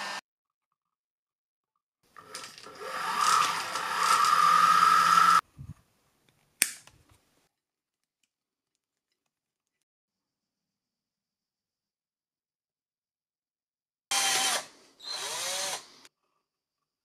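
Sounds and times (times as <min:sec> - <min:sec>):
carriage rolling on drawer slides: 0:02.2 - 0:04.8.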